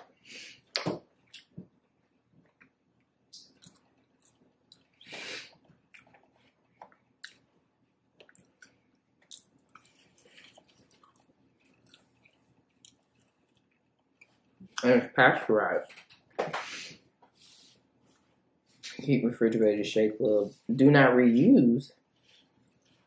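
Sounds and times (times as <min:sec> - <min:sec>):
mouth clicks and smacks: 0:00.6 - 0:01.8, 0:02.5 - 0:07.5, 0:08.2 - 0:14.9
close chewing of food: 0:01.1 - 0:14.8, 0:22.0 - 0:23.0.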